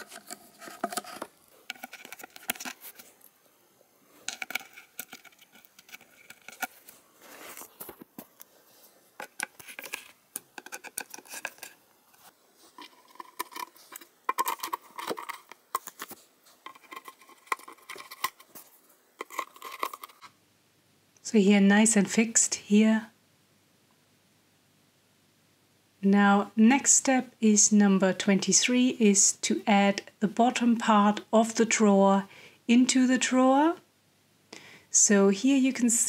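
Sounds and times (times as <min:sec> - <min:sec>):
screwdriver clicks and scrapes: 0:00.0 - 0:03.0.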